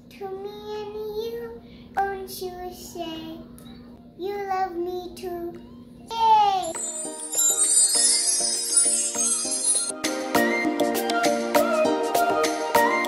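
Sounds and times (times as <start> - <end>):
toddler girl singing: 0.0 - 3.5, 4.2 - 6.8.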